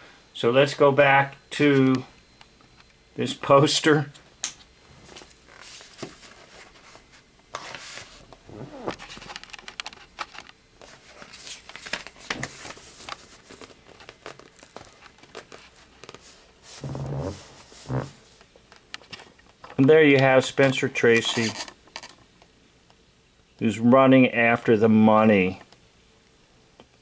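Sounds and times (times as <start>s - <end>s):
cardboard record sleeve rustling: 4.9s - 22.2s.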